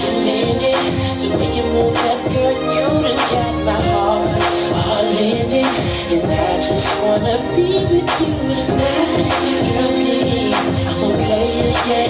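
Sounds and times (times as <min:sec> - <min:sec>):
dance music with steady beat: 0:00.0 - 0:12.0.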